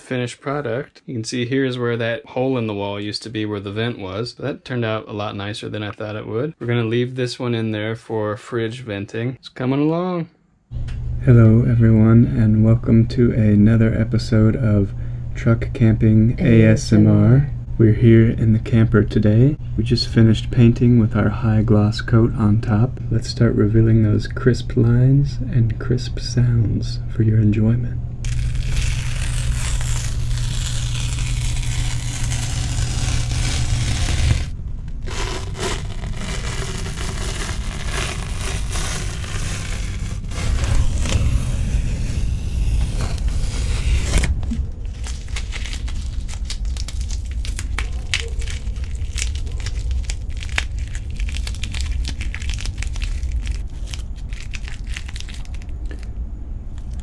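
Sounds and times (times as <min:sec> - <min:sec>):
low rumble: 0:10.7 - 0:57.0
masking tape ripping off wall: 0:28.3 - 0:56.1.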